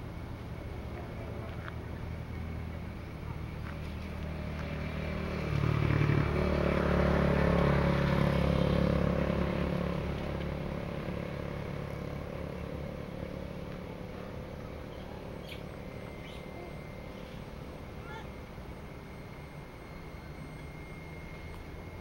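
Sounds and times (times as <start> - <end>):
motorcycle engine running: 0.0 - 22.0.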